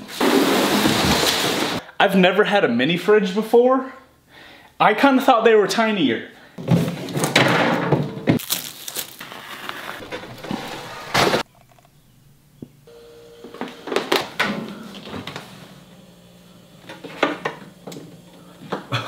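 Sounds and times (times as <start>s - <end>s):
packaging rustling: 8.4s - 11.5s.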